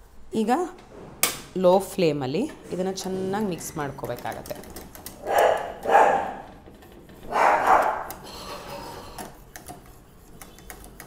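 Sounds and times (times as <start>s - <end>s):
whisk scraping a metal saucepan: 7.0s - 11.0s.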